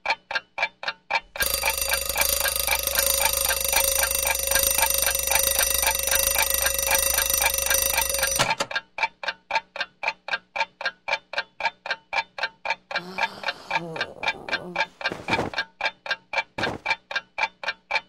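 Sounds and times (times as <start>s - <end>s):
clock ticking: 0.0s - 18.0s
alarm clock ringing: 1.4s - 8.8s.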